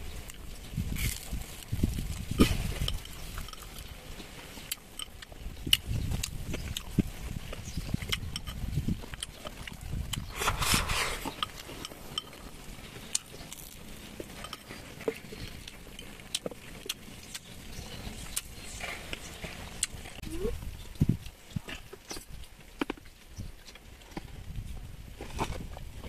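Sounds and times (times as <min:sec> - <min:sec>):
utensils clicking against bowls: 0:02.8 - 0:03.9.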